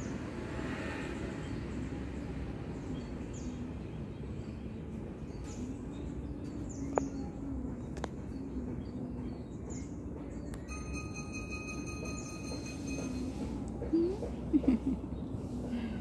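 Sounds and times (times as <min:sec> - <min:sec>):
small birds chirping: 0:01.3 - 0:11.1.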